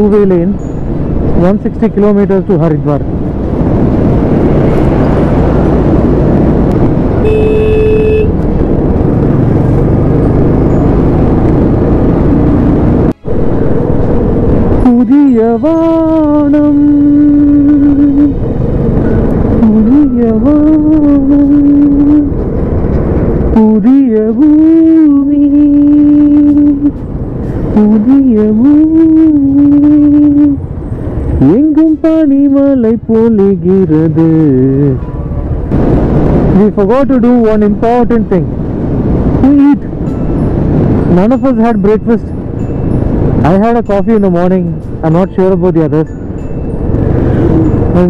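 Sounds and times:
wind rush on microphone: 0.0 - 32.7, 34.0 - 45.0, 46.1 - 48.0
road noise: 0.0 - 48.0
motorcycle engine cruising: 3.0 - 32.0, 33.4 - 48.0
vehicle horn: 7.2 - 8.4
person singing wavering notes: 14.8 - 18.4, 19.0 - 22.3.

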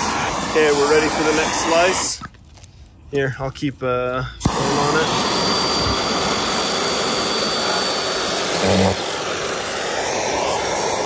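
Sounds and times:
small chainsaw cutting: 4.4 - 11.0.

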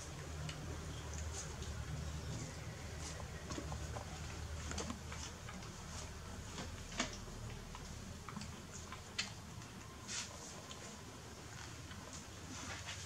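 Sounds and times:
faint clicks and ticks: 0.0 - 10.0
low steady hum: 0.0 - 13.0.

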